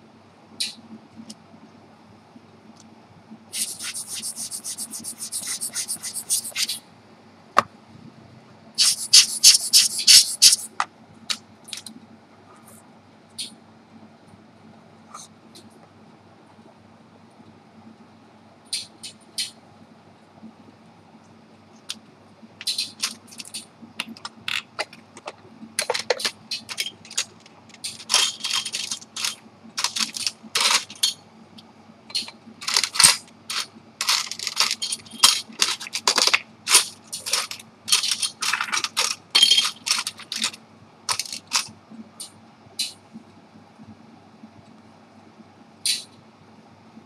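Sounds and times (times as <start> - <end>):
faint steady hum: 0.0 - 47.0
metallic clicks and scrapes: 3.6 - 6.8, 8.8 - 10.8, 22.6 - 31.2, 32.1 - 43.0.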